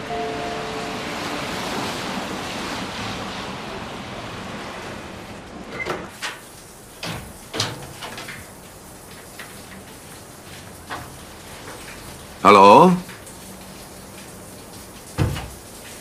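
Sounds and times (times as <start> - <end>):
even rushing noise: 0.0 - 5.5
door being opened: 5.7 - 6.4.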